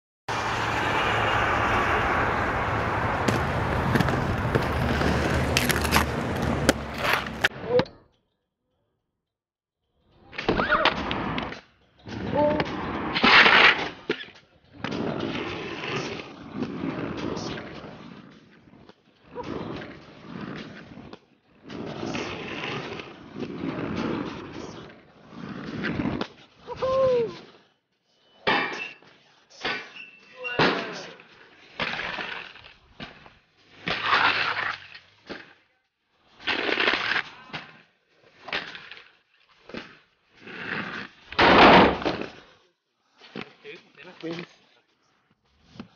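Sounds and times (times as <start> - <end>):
skate landing clack: 0.3 - 7.5, 12.2 - 24.8, 30.6 - 35.6, 38.4 - 40.1, 40.8 - 42.5
skate wheels rolling on concrete: 0.3 - 7.5, 10.8 - 45.9
skates grinding on concrete ledge: 0.3 - 7.7, 10.9 - 27.7, 29.6 - 44.7.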